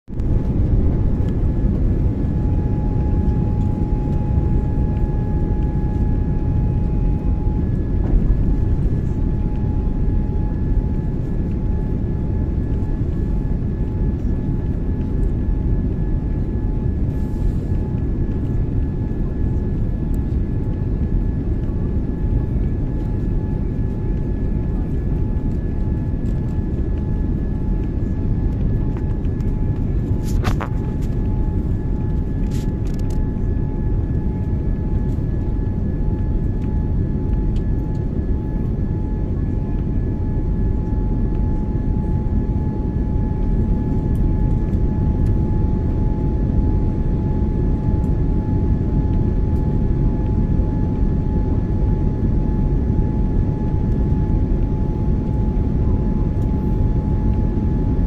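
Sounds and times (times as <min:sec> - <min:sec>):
faint steady whine: 0:00.1 - 0:58.0.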